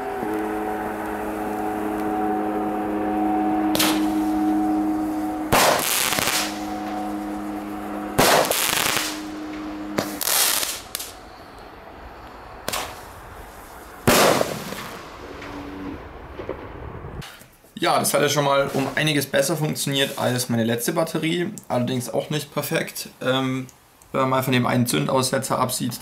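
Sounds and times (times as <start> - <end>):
steady hum: 0.0 - 17.2
fireworks reports: 2.9 - 26.0.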